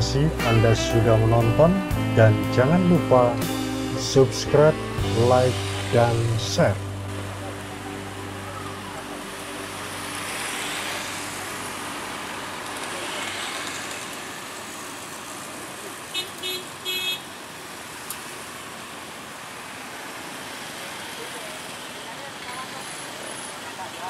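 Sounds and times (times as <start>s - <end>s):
road traffic passing: 0.0s - 24.0s
vehicle horn tooting: 16.1s - 17.3s.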